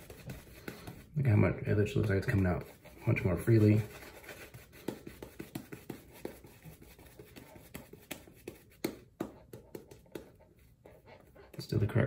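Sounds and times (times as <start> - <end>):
shaving brush scratching on skin: 0.0 - 1.1, 1.8 - 8.8.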